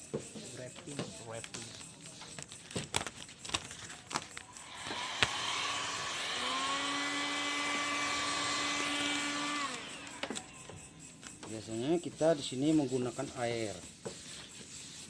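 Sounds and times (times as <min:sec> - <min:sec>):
heat gun fan whining: 0:04.4 - 0:11.6.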